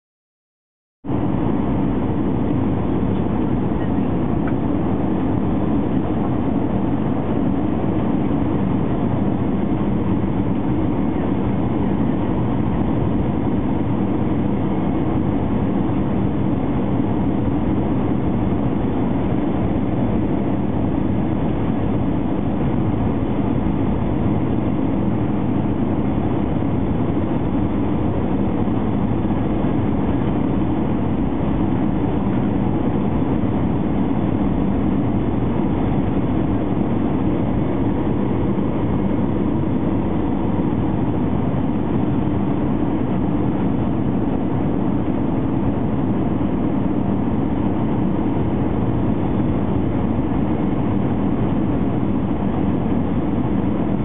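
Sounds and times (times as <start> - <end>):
jet engines and rushing air: 1.1 - 54.0.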